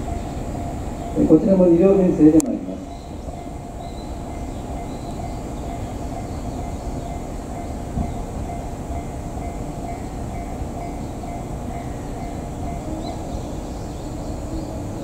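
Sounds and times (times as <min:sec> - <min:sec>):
electric train running rumble: 0:00.0 - 0:15.0.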